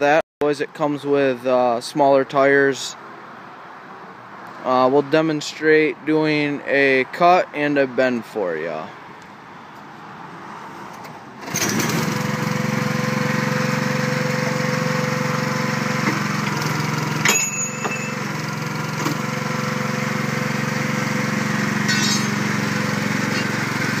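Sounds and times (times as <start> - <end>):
small gasoline engine running: 11.4 - 24.0
sharp crack of rebar shearing: 21.9 - 22.4.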